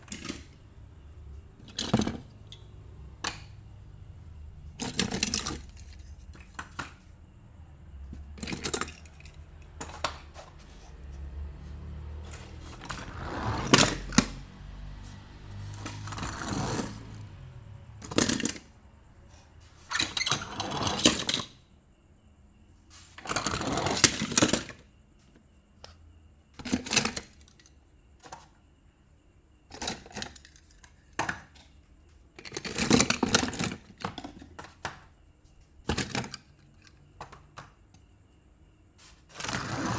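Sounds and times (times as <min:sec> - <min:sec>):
metal toy cars clinking: 0:04.8 - 0:06.8, 0:08.2 - 0:10.5, 0:18.0 - 0:18.8, 0:20.0 - 0:21.5.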